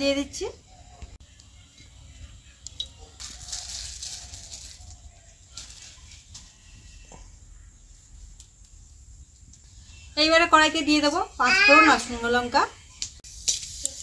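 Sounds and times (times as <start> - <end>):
plastic packet crinkling: 3.1 - 6.4.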